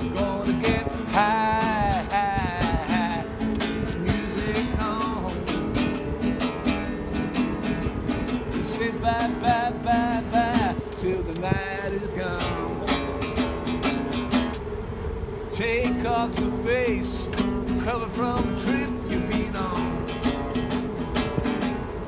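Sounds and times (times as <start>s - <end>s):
person singing: 0.0s - 6.6s
acoustic guitar strumming: 0.0s - 22.0s.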